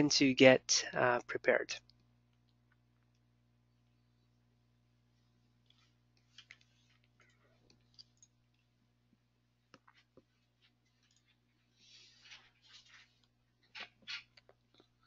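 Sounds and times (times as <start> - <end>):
low electrical hum: 0.0 - 15.0
soft rustle: 5.1 - 8.8, 9.7 - 15.0.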